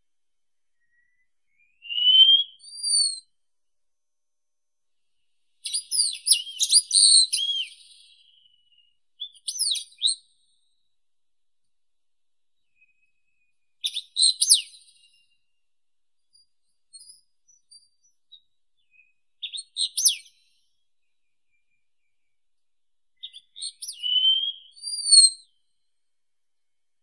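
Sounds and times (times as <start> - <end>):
bird singing high whistles: 0.8 - 3.3, 5.6 - 10.2, 13.8 - 15.4, 17.0 - 20.4, 23.2 - 25.6.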